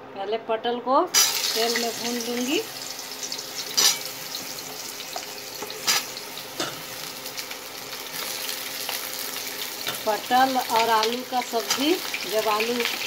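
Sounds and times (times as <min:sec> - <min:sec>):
vegetables sizzling in hot oil: 0:01.1 - 0:13.0
spatula striking pan: 0:03.7 - 0:04.5.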